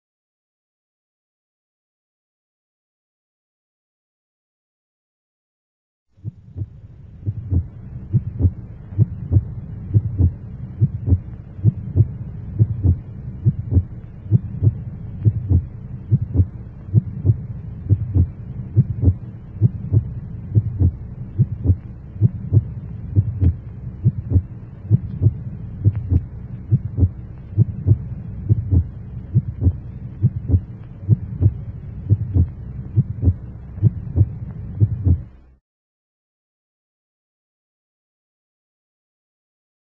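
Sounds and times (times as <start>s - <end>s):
steady low hum: 6.1s - 35.6s
heartbeat thuds: 6.2s - 35.3s.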